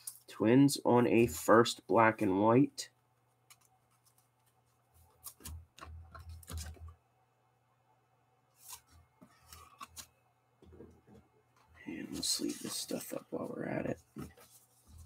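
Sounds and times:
trading cards being shuffled: 5.0 - 6.8, 8.6 - 10.1.

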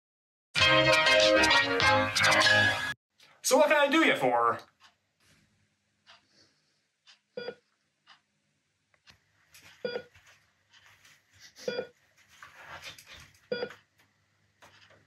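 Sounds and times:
heart monitor beeps: 7.3 - 7.7, 9.8 - 10.2, 11.6 - 12.0, 13.5 - 13.8.

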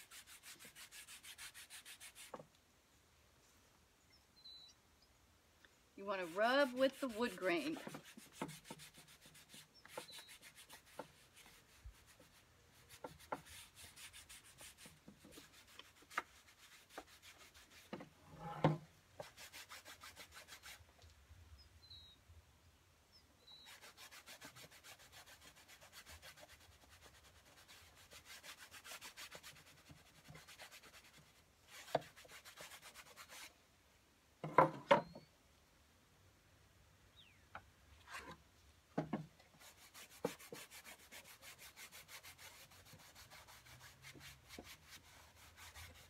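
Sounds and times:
rag scrubbing wood: 0.0 - 2.4, 6.2 - 18.0, 39.5 - 46.0.

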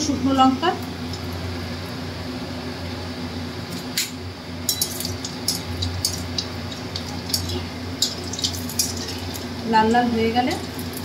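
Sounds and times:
chillies sizzling in oil: 3.8 - 11.0.

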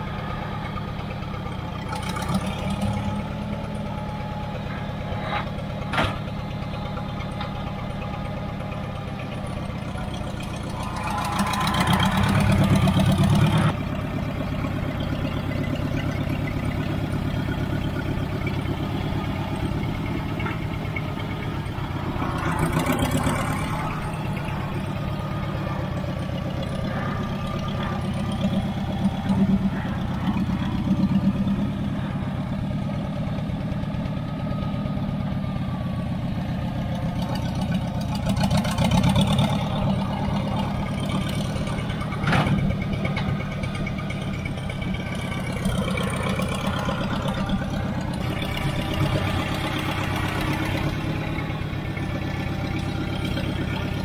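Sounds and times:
loader engine running and revving: 0.0 - 54.0.

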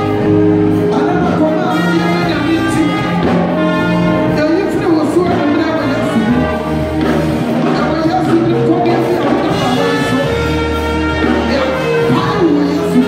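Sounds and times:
keyboard chords: 0.0 - 13.0
sustained bass line: 0.0 - 13.0.

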